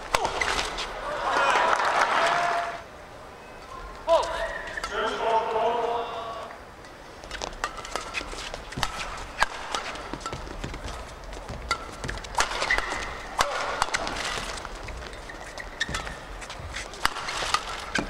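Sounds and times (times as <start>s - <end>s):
rackets hitting shuttlecock: 0.0s - 0.8s, 7.3s - 18.0s
crowd noise: 0.0s - 7.7s
shoe squeaks on court: 11.7s - 13.3s, 14.2s - 18.0s.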